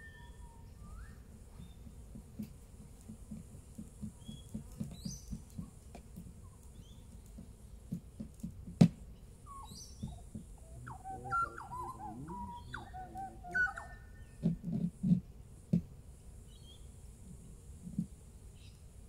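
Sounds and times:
whistled bird calls: 0.0s - 1.8s, 9.4s - 14.4s
soft low knocks and rustles: 1.4s - 10.6s, 14.3s - 16.0s.

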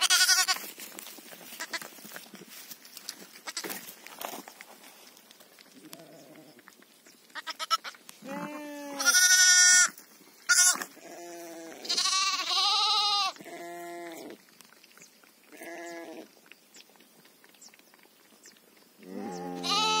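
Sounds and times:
sheep and lamb bleating: 0.0s - 0.7s, 1.5s - 1.9s, 3.4s - 3.8s, 5.8s - 6.6s, 7.4s - 14.4s, 15.5s - 16.3s, 19.0s - 20.0s.

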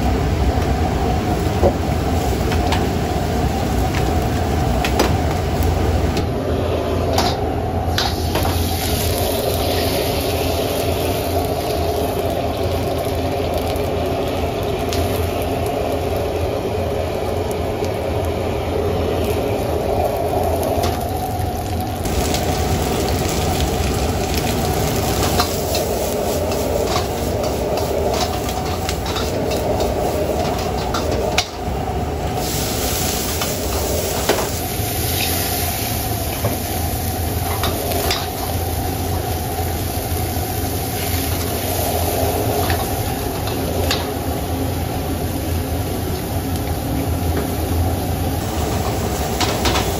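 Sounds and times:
gas burner rushing: 0.0s - 49.9s
vegetables sizzling in a wok: 0.0s - 49.9s
metal utensils scraping a wok: 25.2s - 31.5s.

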